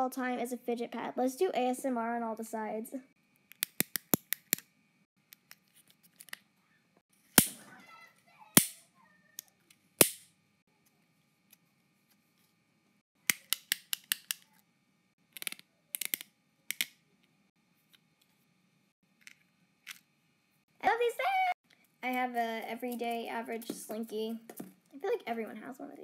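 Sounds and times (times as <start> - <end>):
fidget toy clicking: 15.3 - 16.9.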